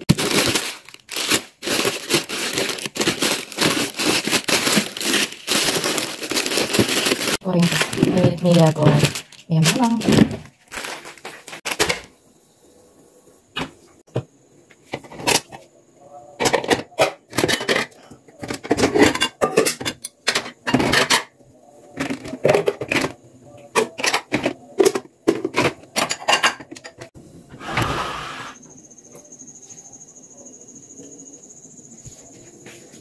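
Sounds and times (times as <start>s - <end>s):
plastic bowls clattering: 0.0s - 12.1s, 16.4s - 27.1s.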